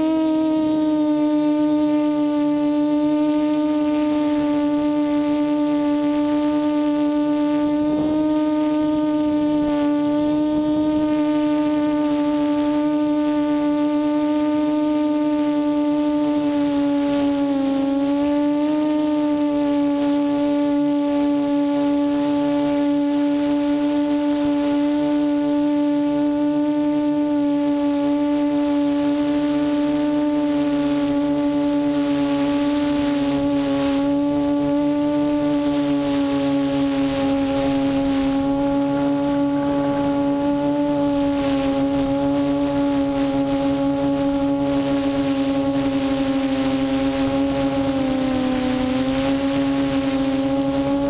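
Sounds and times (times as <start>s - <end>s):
drone motors whining: 0.0s - 51.0s
quadcopter hovering hum: 0.0s - 51.0s
hiss of air: 19.0s - 51.0s.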